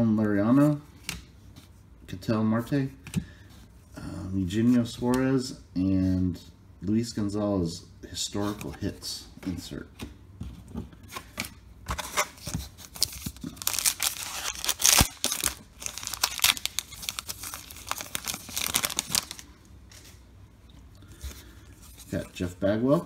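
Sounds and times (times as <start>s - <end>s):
card pack wrapper tearing and crinkling: 12.0s - 19.5s.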